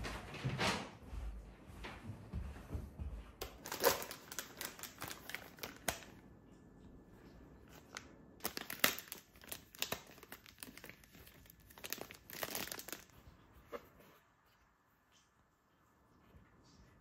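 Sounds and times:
plastic film crinkling: 0:03.4 - 0:06.2, 0:07.6 - 0:13.3.

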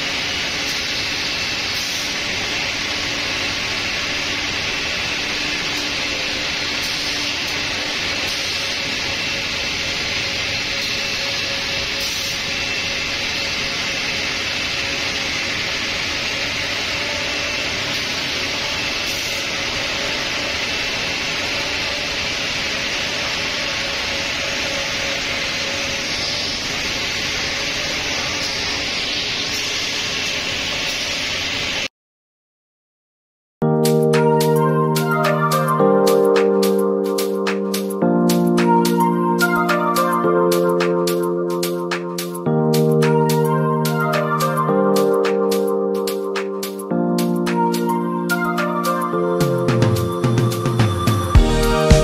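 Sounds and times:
router machine hissing and whining: 0:00.0 - 0:31.8.

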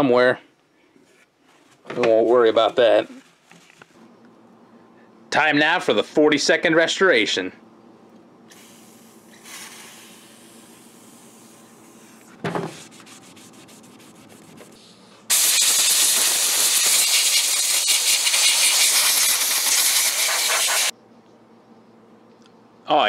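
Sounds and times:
aerosol can spraying: 0:08.5 - 0:11.5, 0:15.3 - 0:20.9
rapid scrubbing with brush: 0:12.8 - 0:14.8, 0:16.7 - 0:20.9.

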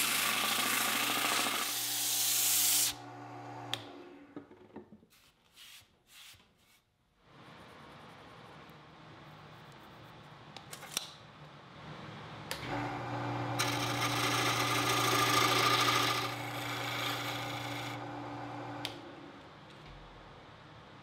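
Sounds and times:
wood lathe motor humming: 0:00.0 - 0:03.9, 0:12.6 - 0:19.0
turning tool scraping wood: 0:13.6 - 0:18.0.

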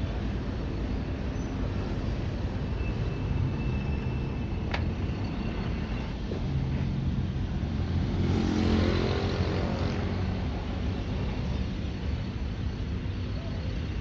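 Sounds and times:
city traffic rumble: 0:00.0 - 0:14.0
vehicle passing close by: 0:07.8 - 0:10.5.

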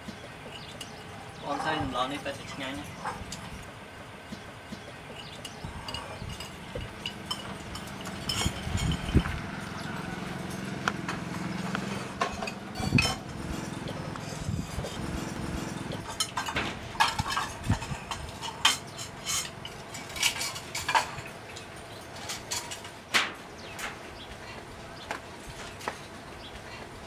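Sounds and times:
dishes clinking and clattering: 0:00.1 - 0:03.6, 0:04.7 - 0:09.4, 0:11.9 - 0:24.0
low engine hum: 0:03.0 - 0:18.5.

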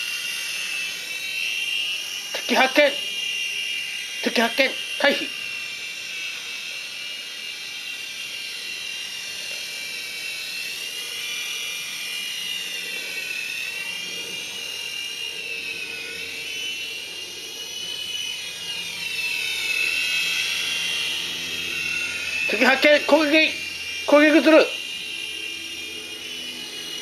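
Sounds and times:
toy helicopter whining: 0:00.0 - 0:27.0.

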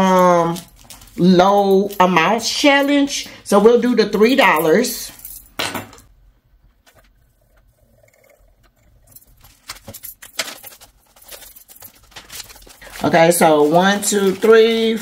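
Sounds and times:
paper bills rustling: 0:00.0 - 0:02.5, 0:09.1 - 0:15.0
plastic pouch crinkling: 0:00.1 - 0:01.3, 0:09.2 - 0:15.0.

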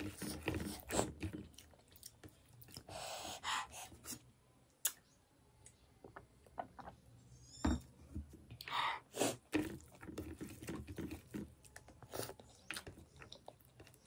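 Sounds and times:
person chewing food: 0:00.0 - 0:03.0, 0:09.3 - 0:14.0.

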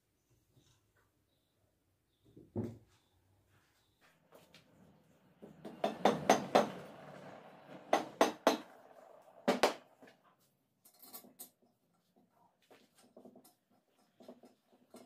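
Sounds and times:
hammer knocking on metal: 0:05.4 - 0:07.2, 0:07.8 - 0:08.7.

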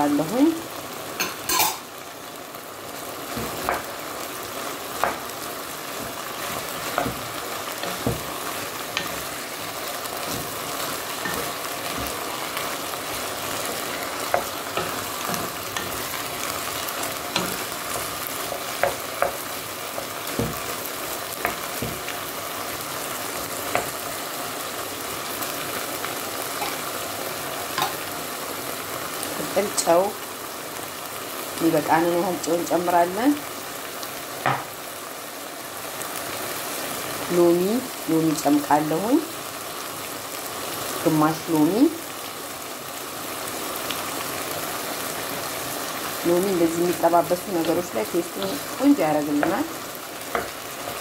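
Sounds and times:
food sizzling in oil: 0:00.0 - 0:51.0
wooden spoon knocking on pot: 0:06.8 - 0:09.3, 0:20.0 - 0:20.8, 0:21.4 - 0:22.1.

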